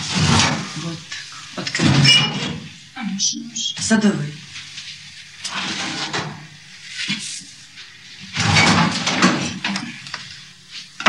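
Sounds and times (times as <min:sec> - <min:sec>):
metal tray scraping and clattering: 0:00.0 - 0:00.8, 0:05.4 - 0:06.4.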